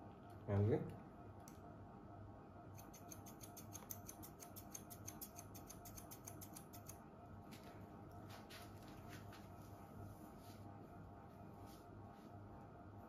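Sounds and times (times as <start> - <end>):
scissors snipping hair: 2.7 - 7.0.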